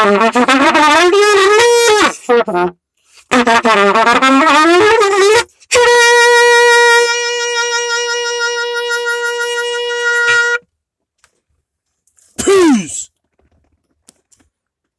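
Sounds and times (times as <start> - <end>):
trumpet note with vibrato: 3.3 - 10.6.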